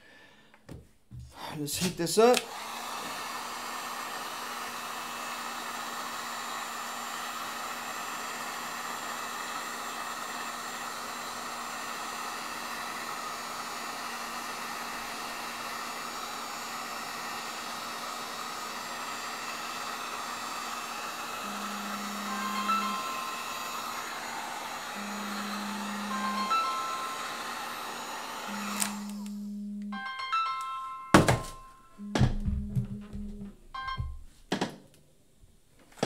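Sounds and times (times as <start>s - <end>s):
heat gun blowing air: 1.8s - 29.6s
fan motor hum: 18.6s - 29.8s.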